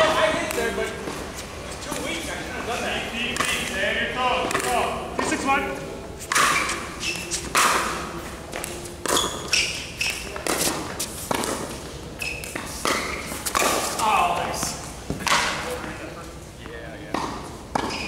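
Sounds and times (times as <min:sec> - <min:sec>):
paddles hitting pickleball: 0:03.3 - 0:03.8, 0:04.4 - 0:05.4, 0:06.3 - 0:15.7
ball bouncing on court: 0:17.1 - 0:18.0.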